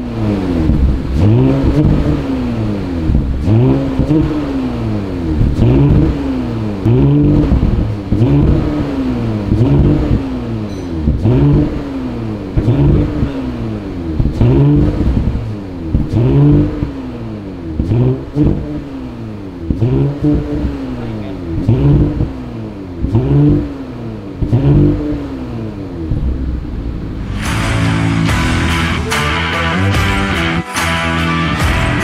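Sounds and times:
car engine revving: 0:00.0 - 0:32.0.

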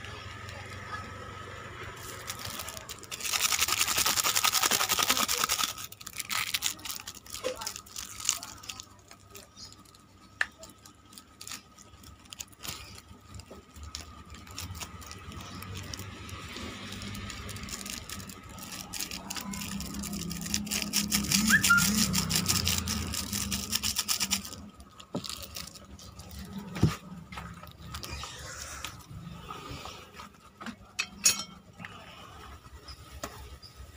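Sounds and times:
plastic sachets crinkling: 0:01.9 - 0:29.1.

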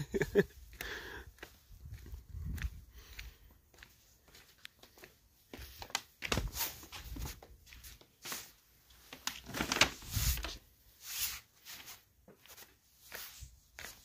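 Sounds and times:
footsteps in sandals on concrete: 0:00.0 - 0:09.4, 0:10.1 - 0:14.0
paper bag crinkling: 0:09.2 - 0:10.6.

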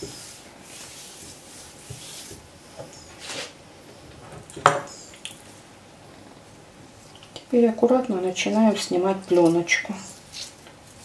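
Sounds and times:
salt rubbed over liver: 0:00.0 - 0:02.4.

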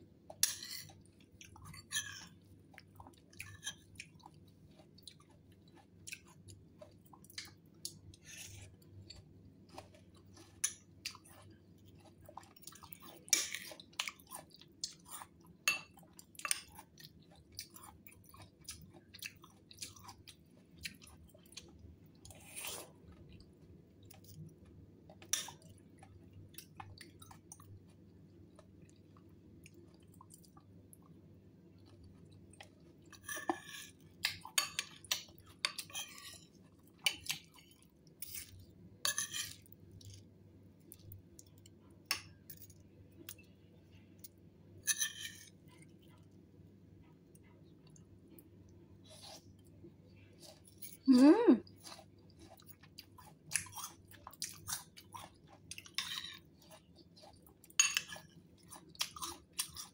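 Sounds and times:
person chewing wetly: 0:00.3 - 0:38.7, 0:51.6 - 0:59.9
spoon clinking in a bowl: 0:57.8 - 0:58.2.

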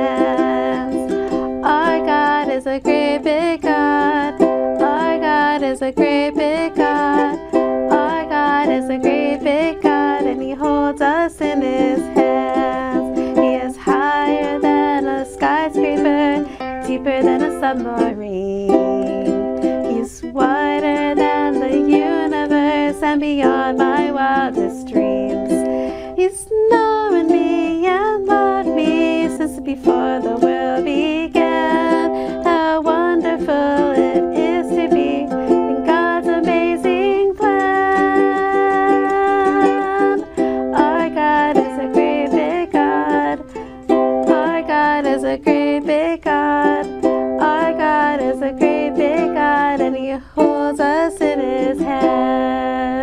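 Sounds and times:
strummed ukulele: 0:00.0 - 0:53.0
woman singing: 0:00.0 - 0:53.0.

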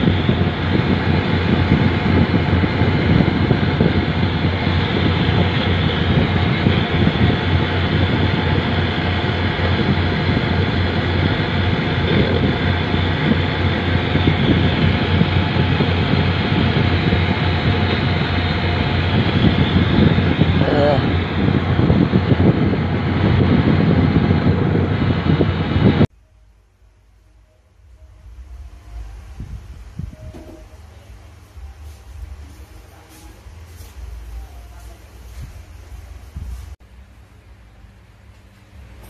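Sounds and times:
boat engine rumbling: 0:00.0 - 0:26.7, 0:27.7 - 0:36.8.

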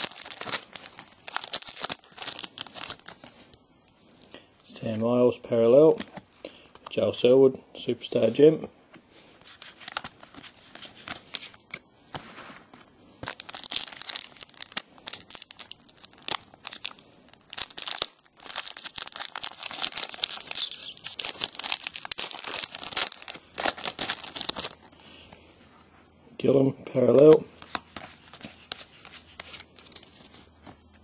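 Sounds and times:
foil wrappers tearing and crinkling: 0:00.0 - 0:03.4, 0:09.5 - 0:11.7, 0:13.2 - 0:25.0
cards being handled: 0:09.4 - 0:14.2, 0:27.0 - 0:31.0.

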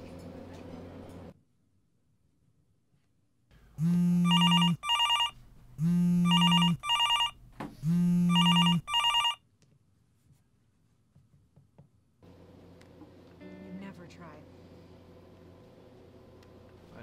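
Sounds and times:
mobile phone ringing: 0:03.8 - 0:09.4.

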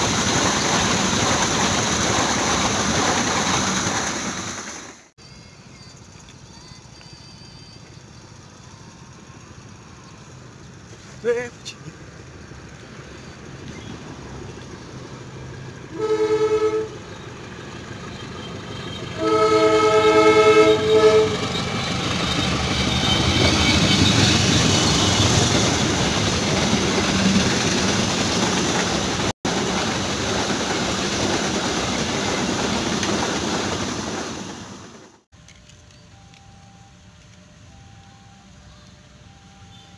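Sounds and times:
train running on rails: 0:00.0 - 0:39.9
train horn chord: 0:15.9 - 0:17.0, 0:19.2 - 0:21.5.

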